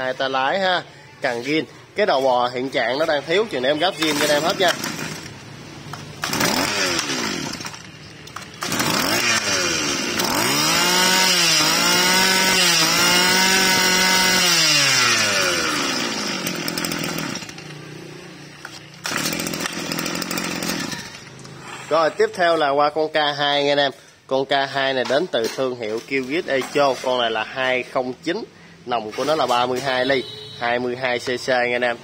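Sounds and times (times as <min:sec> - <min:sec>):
brush-cutter engine revving: 0:03.0 - 0:22.1.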